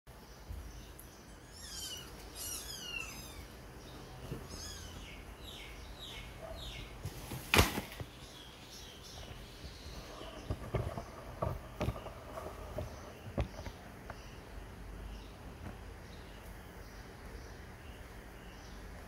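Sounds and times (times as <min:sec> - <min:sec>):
kittens mewing: 0:01.4 - 0:03.7, 0:04.4 - 0:05.2.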